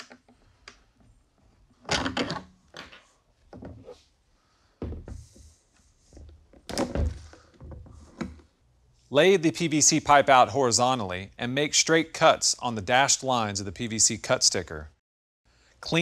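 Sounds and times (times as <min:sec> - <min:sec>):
plastic pipe knocks and thumps: 0:04.8 - 0:05.5, 0:06.1 - 0:08.4.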